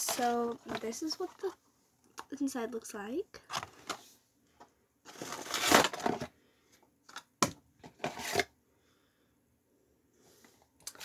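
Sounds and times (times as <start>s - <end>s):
cardboard and packaging rustling: 0.0s - 1.6s, 5.0s - 6.4s, 7.1s - 8.5s.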